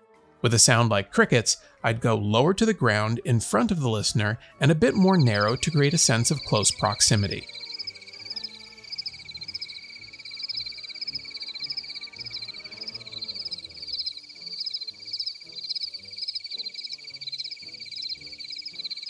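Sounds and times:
crickets trilling: 0:04.8 - 0:19.0
pulsing cricket chirps: 0:04.9 - 0:19.0.

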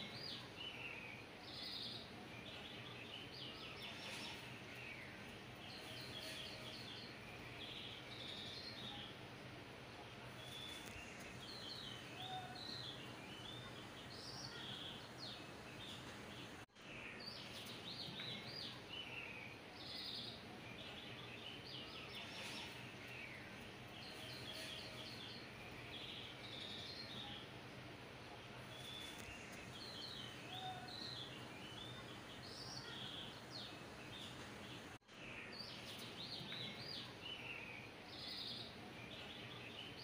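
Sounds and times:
faint steady hiss: 0:00.0 - 0:40.0
small birds chirping: 0:00.0 - 0:40.0.

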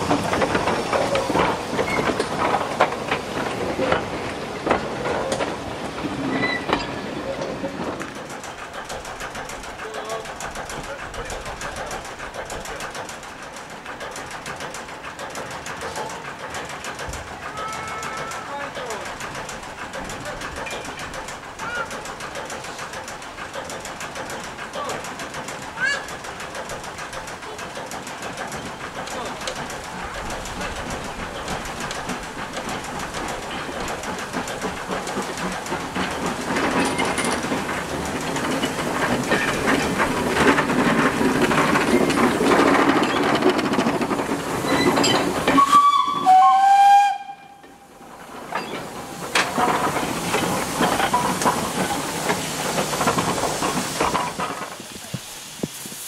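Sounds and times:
steam train passing on rails: 0:00.0 - 0:56.0
two-tone steam whistle: 0:17.5 - 0:18.6, 0:45.5 - 0:47.9.

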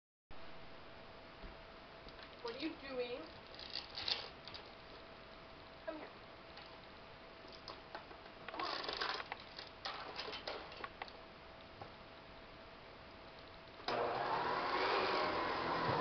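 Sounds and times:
claws clicking on floor: 0:07.5 - 0:11.2.

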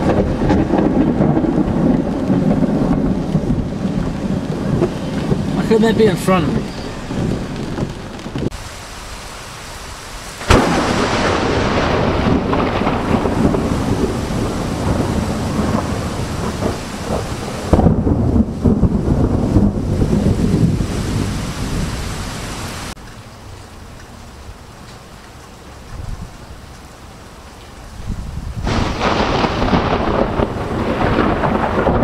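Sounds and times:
thunder cracks and rumbling: 0:00.0 - 0:08.6, 0:10.4 - 0:22.4, 0:28.0 - 0:32.0
rain: 0:00.0 - 0:32.0.

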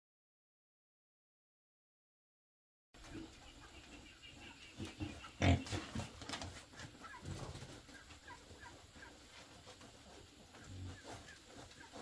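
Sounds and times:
young pigs grunting and snuffling: 0:03.0 - 0:12.0.

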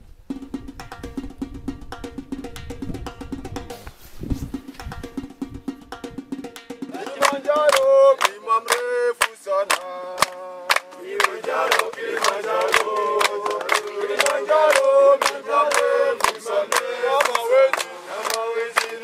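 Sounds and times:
percussive hits: 0:00.3 - 0:08.4
men singing a chant: 0:06.9 - 0:19.0.

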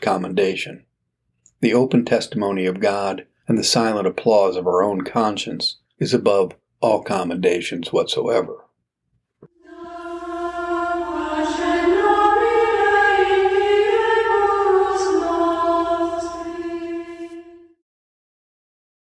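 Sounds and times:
choir singing slow melody: 0:09.6 - 0:17.8.

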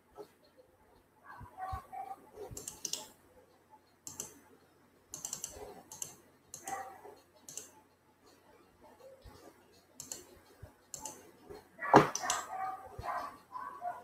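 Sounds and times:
computer keyboard clicking: 0:02.5 - 0:03.1, 0:04.0 - 0:04.4, 0:05.1 - 0:06.8, 0:07.4 - 0:07.7, 0:10.0 - 0:10.3, 0:10.9 - 0:11.2, 0:12.1 - 0:12.5.

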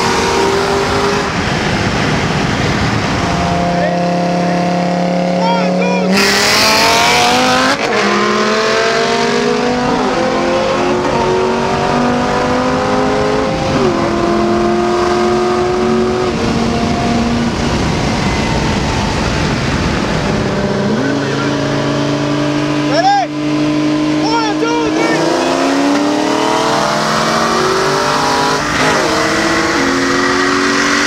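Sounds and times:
car engine at full throttle: 0:00.0 - 0:31.0
wind and road noise: 0:00.0 - 0:31.0.

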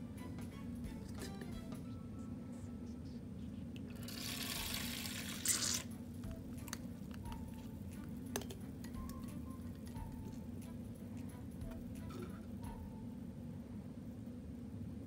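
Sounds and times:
syringe squirting liquid: 0:03.9 - 0:06.0.

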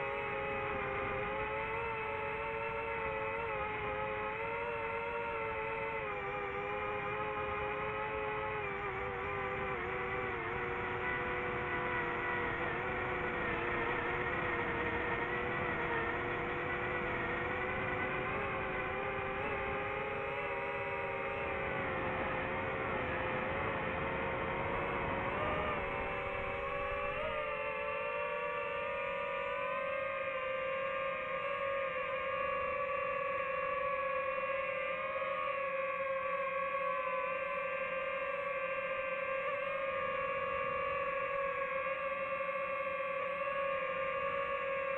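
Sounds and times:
drone motors whining: 0:00.0 - 0:44.9.

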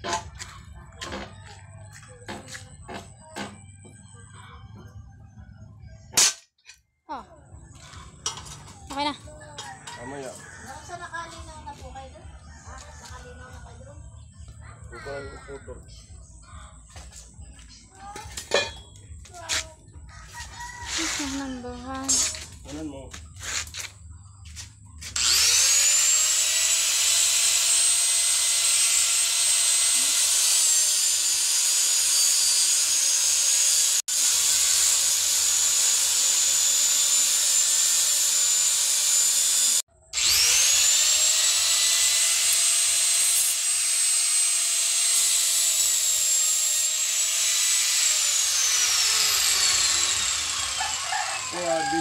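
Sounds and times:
grinder grinding steel rod: 0:20.8 - 0:52.0
angle grinder whining: 0:24.6 - 0:52.0.

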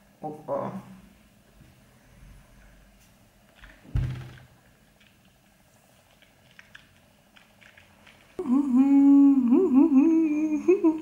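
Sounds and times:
woman humming: 0:08.4 - 0:11.0.

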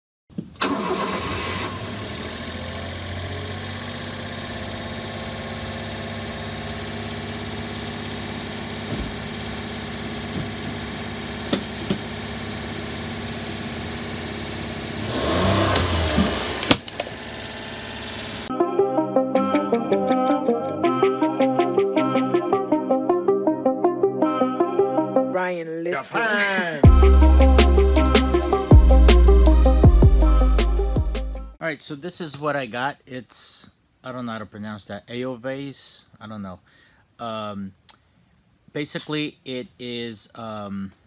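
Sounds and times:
truck engine idling: 0:01.9 - 0:18.5.

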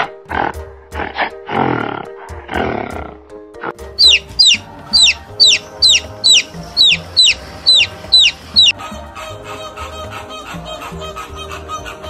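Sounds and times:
background music: 0:00.0 - 0:12.0
baby chicks peeping: 0:04.0 - 0:12.0.

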